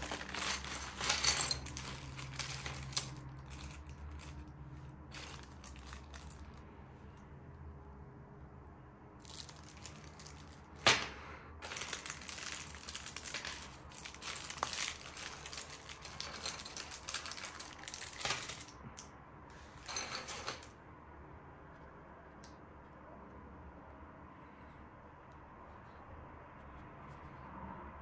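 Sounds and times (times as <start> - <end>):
packaging rustling: 0.0 - 4.4, 5.1 - 6.6, 11.6 - 18.8.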